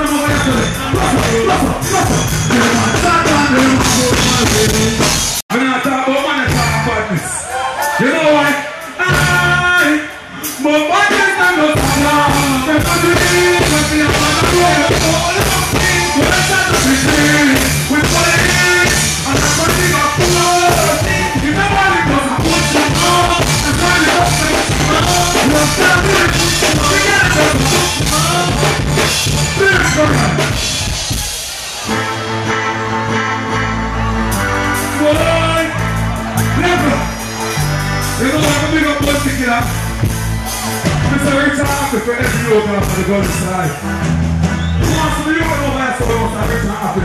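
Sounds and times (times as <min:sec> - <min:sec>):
dancehall backing music: 0:00.0 - 0:47.0
person singing into a microphone: 0:10.8 - 0:28.7.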